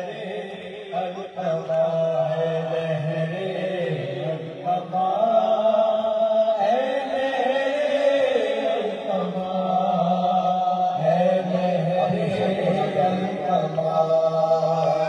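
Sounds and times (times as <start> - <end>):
men chanting a mourning lament: 0.0 - 15.0.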